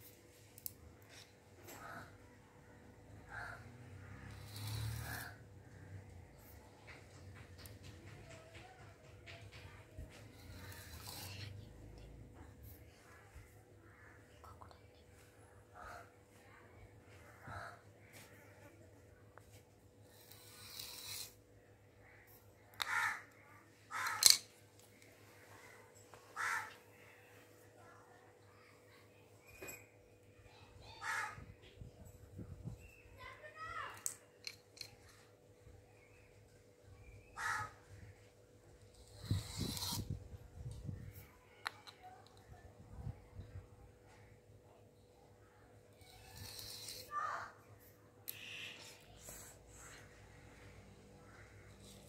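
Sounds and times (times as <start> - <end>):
crow cawing: 3.3 - 3.8, 22.8 - 23.3, 23.9 - 24.3, 26.4 - 26.9, 31.0 - 31.5, 37.4 - 38.0.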